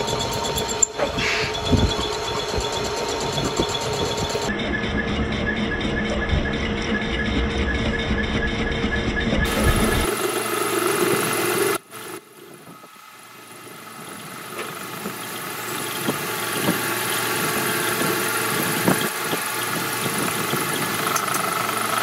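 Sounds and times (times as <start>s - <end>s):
metal lathe machining hum: 0.0s - 22.0s
sharp ticks: 14.6s - 22.0s.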